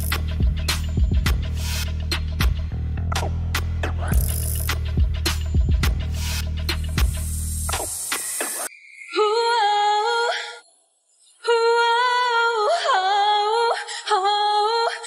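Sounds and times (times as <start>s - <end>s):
woman singing a cappella: 9.1s - 10.6s, 11.4s - 15.0s.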